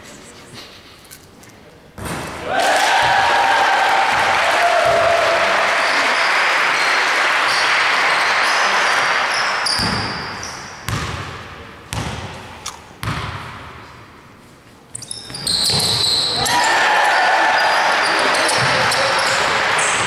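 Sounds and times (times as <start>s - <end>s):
crowd applause: 2.5s - 9.7s, 16.4s - 20.0s
basketball bouncing on hardwood: 10.9s - 11.3s, 11.9s - 12.3s.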